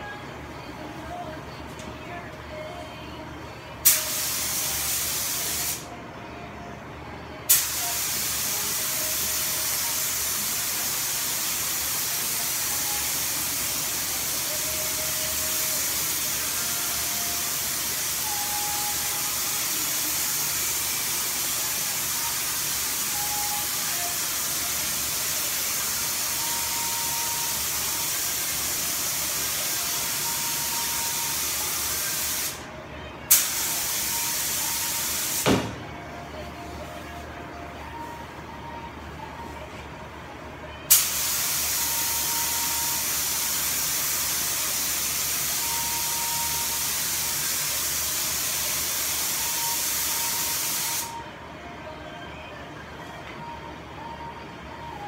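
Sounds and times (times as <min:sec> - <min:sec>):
paint spray gun hissing: 0:40.9 - 0:42.3, 0:46.6 - 0:51.1.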